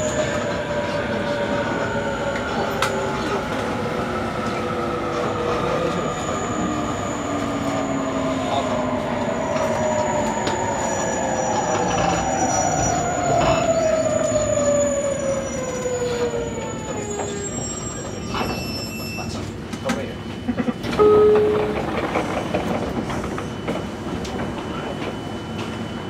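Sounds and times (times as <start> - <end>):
electric train inverter whine: 19.6 - 26.0
short loud tone: 21.0 - 22.0.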